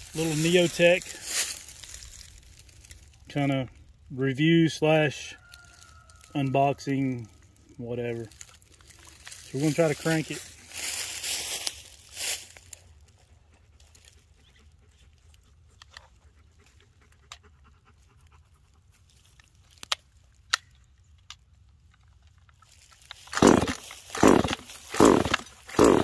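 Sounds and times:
chainsaw starter cord pull: 0:23.0 - 0:26.0.

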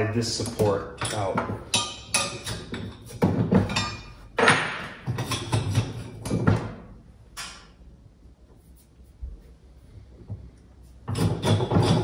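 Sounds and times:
metal frame knocking and scraping: 0:00.4 - 0:06.9, 0:10.3 - 0:12.0.

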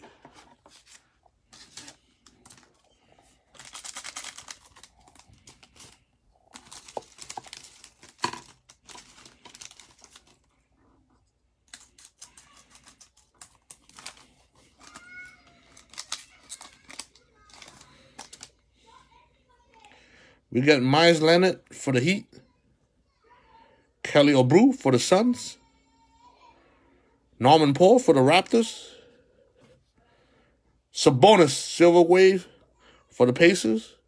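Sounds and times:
foil wrapper crinkling: 0:00.6 - 0:10.6, 0:11.6 - 0:18.6.

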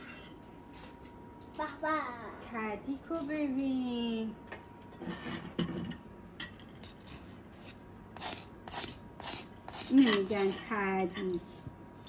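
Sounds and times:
spatula scraping crisp rice crust: 0:07.4 - 0:10.6.

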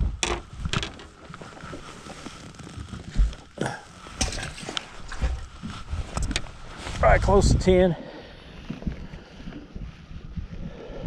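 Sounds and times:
rustling: 0:00.2 - 0:07.2.

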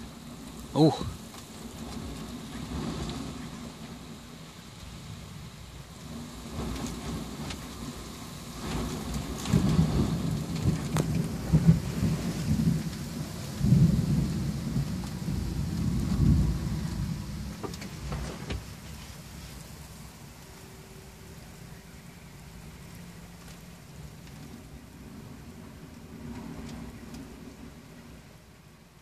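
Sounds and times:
raindrops ticking on cab: 0:00.0 - 0:05.0, 0:05.8 - 0:20.6, 0:21.4 - 0:29.0
thunder rumbling: 0:00.0 - 0:19.0.

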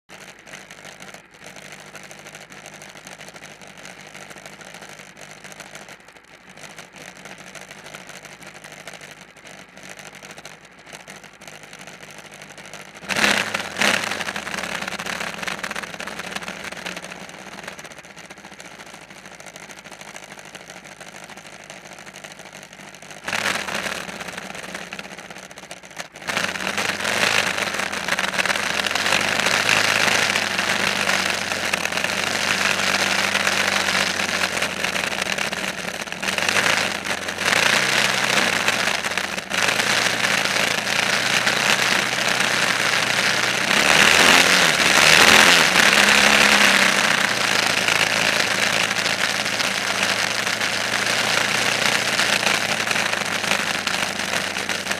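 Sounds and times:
engine revving: 0:11.8 - 0:20.3, 0:20.9 - 0:54.9.

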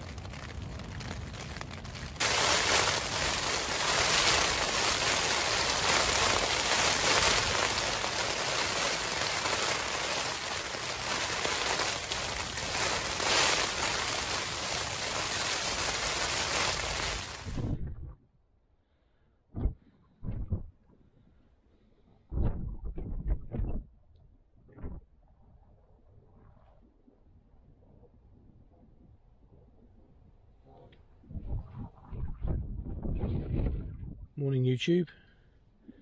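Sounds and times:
rain on a tent: 0:00.0 - 0:17.8.

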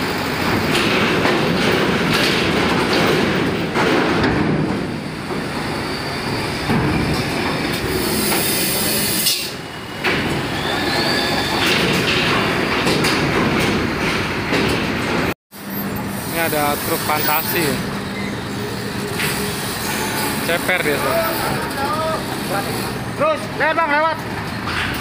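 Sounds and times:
truck engines running: 0:09.5 - 0:25.0
metal ramp plates clanking: 0:11.2 - 0:15.4.

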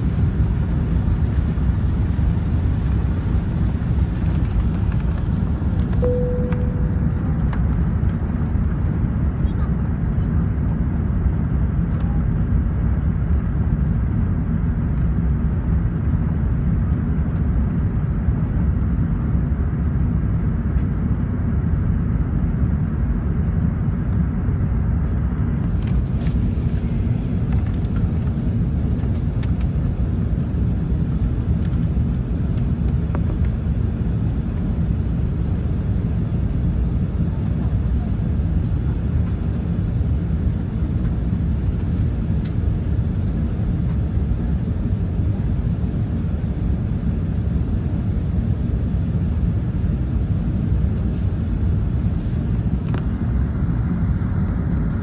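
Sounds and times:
aircraft cabin engine rumble: 0:00.0 - 0:55.0.

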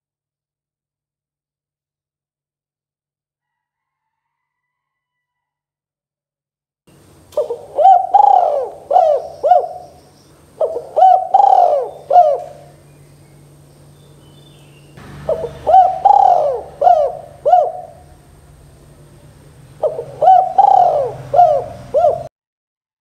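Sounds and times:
dove cooing: 0:07.3 - 0:12.9, 0:15.0 - 0:22.3.

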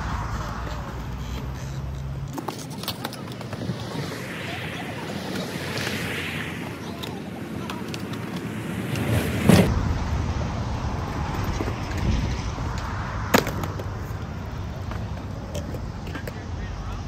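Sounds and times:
skateboard wheels rolling on concrete: 0:00.0 - 0:17.0
skateboard clack: 0:01.0 - 0:04.1, 0:06.6 - 0:09.7, 0:12.8 - 0:17.0.

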